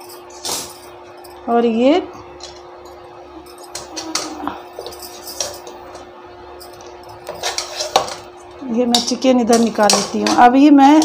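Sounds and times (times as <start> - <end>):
steady low hum: 0.0 - 11.0
metal utensil clinking on frying pan: 3.6 - 5.8, 8.8 - 11.0.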